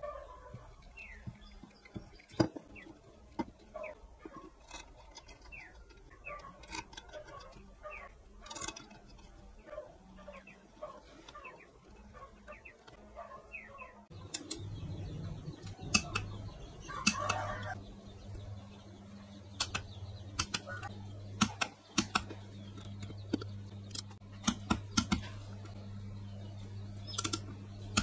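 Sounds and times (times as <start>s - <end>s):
low steady hum: 0.0s - 28.0s
small birds chirping: 0.0s - 28.0s
sharp clicks and taps: 15.6s - 17.8s, 19.5s - 25.8s, 27.1s - 28.0s.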